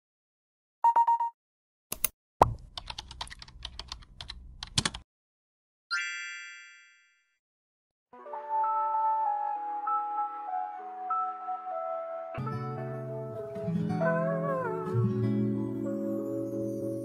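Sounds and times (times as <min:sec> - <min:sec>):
short electronic beep: 0:00.8 - 0:01.4
keyboard typing clicks: 0:01.9 - 0:05.0.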